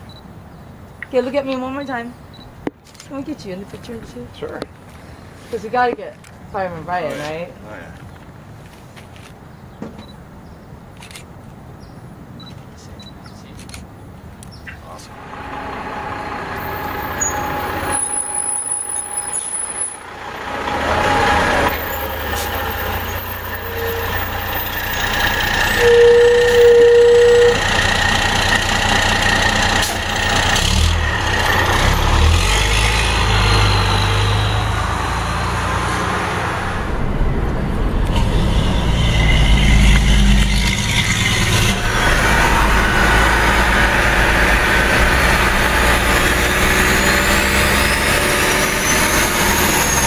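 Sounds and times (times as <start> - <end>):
fire engine driving off: 15.1 - 50.0
vehicle horn toots: 23.1 - 28.0.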